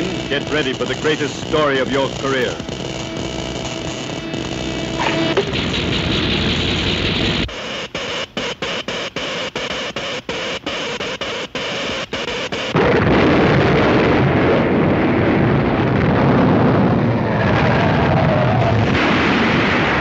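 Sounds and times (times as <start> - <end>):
hissing electric crackle: 0.0 - 8.8
deep rumble: 12.8 - 20.0.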